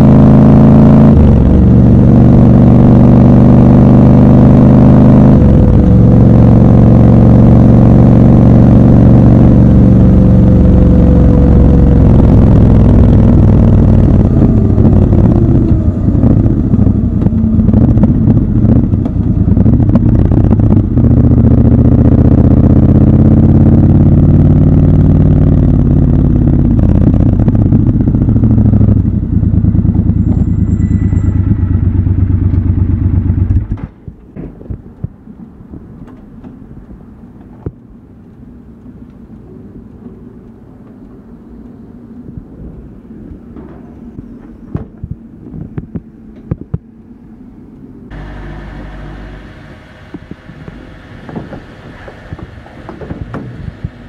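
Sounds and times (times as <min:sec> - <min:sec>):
motorcycle engine slowing: 0:00.0 - 0:34.1, 0:48.1 - 0:54.0.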